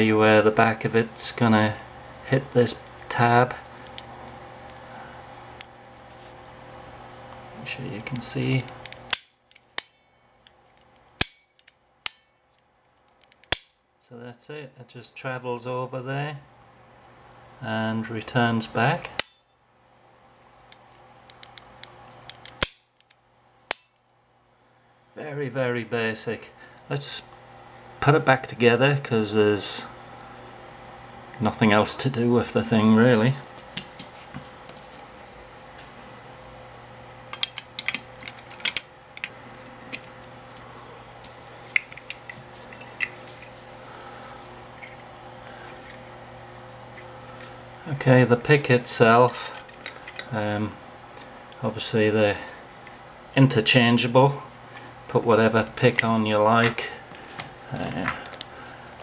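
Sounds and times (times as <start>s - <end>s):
sharp metal snaps: 8.1s - 13.8s, 19.1s - 19.7s, 20.4s - 24.2s.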